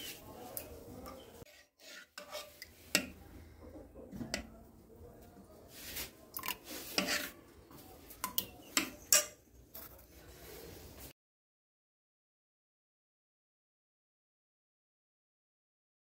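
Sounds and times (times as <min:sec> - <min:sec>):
dishes and cutlery clinking: 0:06.4 - 0:07.4, 0:08.2 - 0:10.0.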